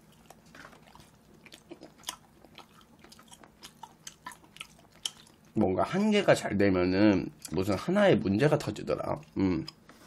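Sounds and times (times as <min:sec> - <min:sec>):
chewing with wet clicks and smacks: 0:00.0 - 0:05.7, 0:07.3 - 0:07.8, 0:08.6 - 0:10.0.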